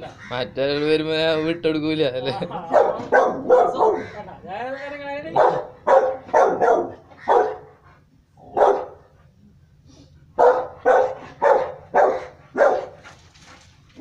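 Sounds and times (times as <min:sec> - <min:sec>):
dog barking deeply: 0:02.6 - 0:04.2, 0:05.2 - 0:07.8, 0:08.4 - 0:09.2, 0:10.4 - 0:13.0.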